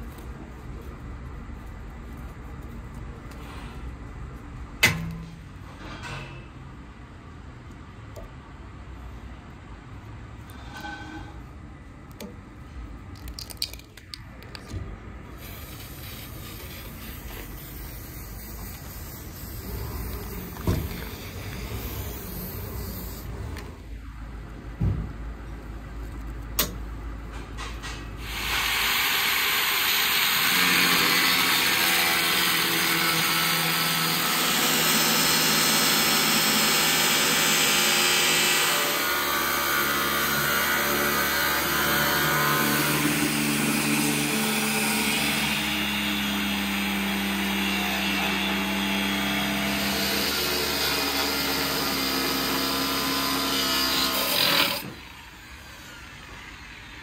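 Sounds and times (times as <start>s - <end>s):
power tool cutting metal: 28.2s - 56.6s.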